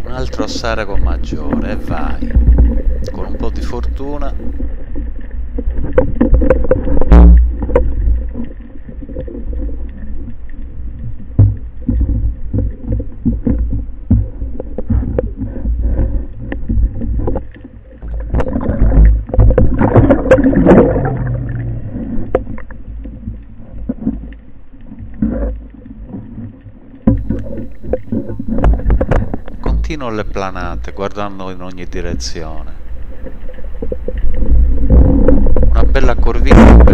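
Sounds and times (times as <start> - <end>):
low underwater rumble: 0.0 - 36.9
rushing water and bubbles: 0.0 - 36.9.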